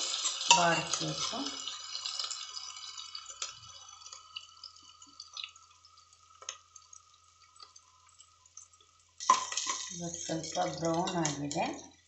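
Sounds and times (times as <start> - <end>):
onions sizzling in oil: 0.0 - 12.0
steel spatula stirring: 9.2 - 11.8.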